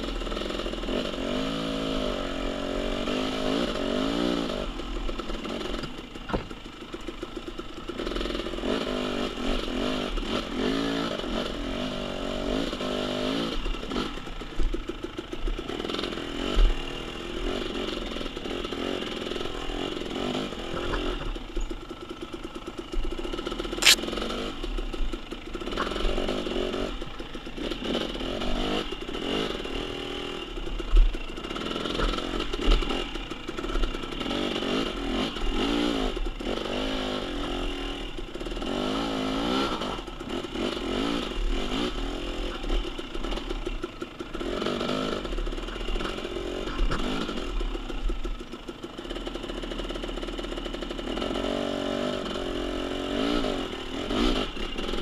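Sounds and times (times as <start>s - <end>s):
dirt bike engine revving: 23.8s - 24.6s.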